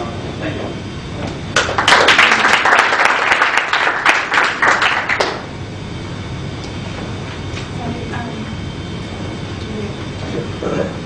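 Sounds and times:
audience applauding: 1.6s - 5.4s.

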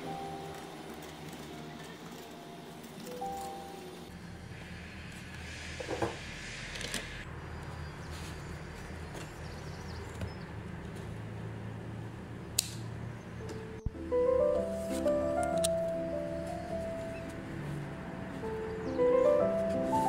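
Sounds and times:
sharp click: 12.6s - 12.8s
background music: 13.4s - 20.0s.

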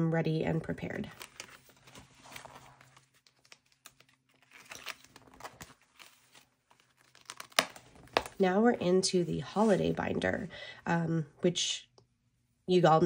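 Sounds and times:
paper and plastic rustling: 0.8s - 8.4s.

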